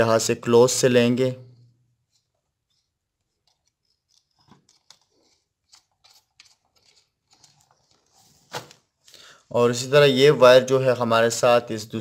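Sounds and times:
screwdriver clicks and scrapes: 2.1s - 7.7s.

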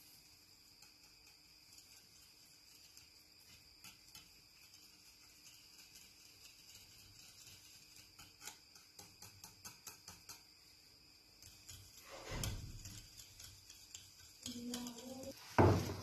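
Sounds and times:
whisk ticking against glass bowl: 0.0s - 15.4s
whisk scraping stir: 0.0s - 16.0s
sharp knock: 15.6s - 16.0s.

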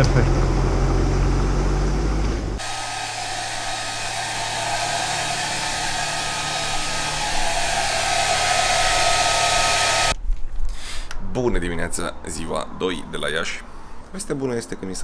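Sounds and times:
hair dryer blowing: 2.6s - 10.2s.

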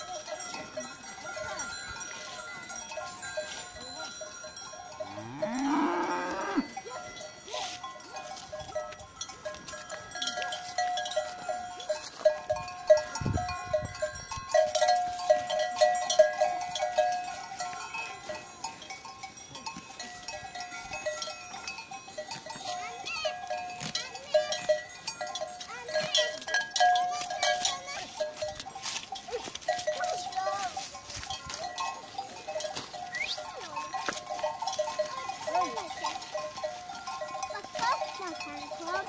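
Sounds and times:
cowbells clanking: 0.0s - 39.0s
cow mooing: 5.1s - 6.7s.

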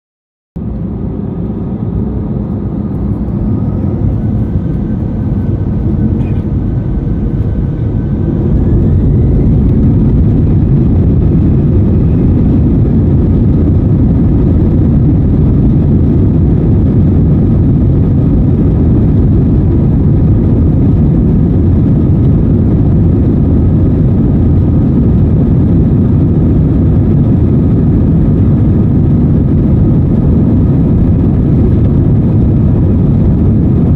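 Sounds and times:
jet engines spooling up: 0.6s - 33.8s.

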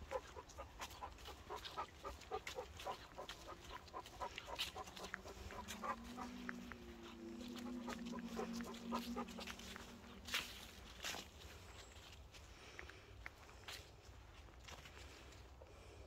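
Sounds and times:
dog panting: 0.0s - 11.7s
steady low hum: 0.0s - 12.4s
footsteps in dry leaves: 0.0s - 16.0s.

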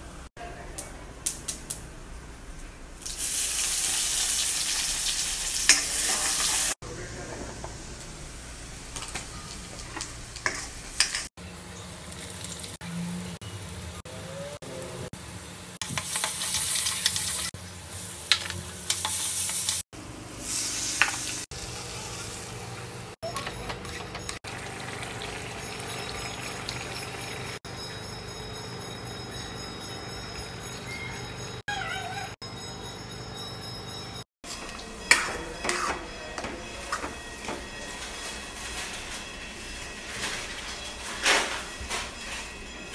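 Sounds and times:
food sizzling in oil: 3.0s - 6.8s, 15.8s - 23.2s, 24.4s - 27.6s
spatula scraping a pan: 34.5s - 36.2s.

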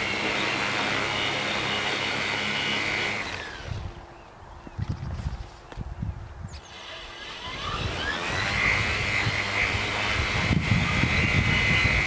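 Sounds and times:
propeller motors whining: 0.0s - 4.4s, 6.6s - 12.0s.

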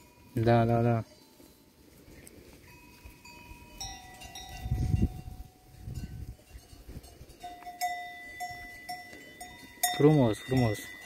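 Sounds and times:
sheep bells ringing: 0.0s - 11.0s.

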